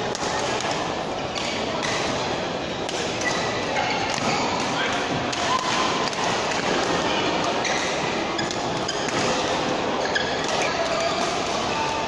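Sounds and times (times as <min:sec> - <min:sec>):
many distant voices: 0:00.0 - 0:12.0
racket hitting shuttlecock: 0:02.8 - 0:12.0
shoes squeaking on court: 0:07.6 - 0:12.0.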